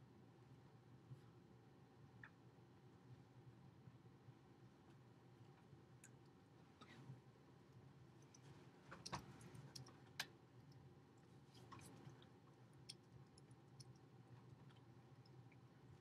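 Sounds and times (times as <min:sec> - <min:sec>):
faint low hum: 0:00.0 - 0:16.0
faint clicks: 0:11.6 - 0:15.6.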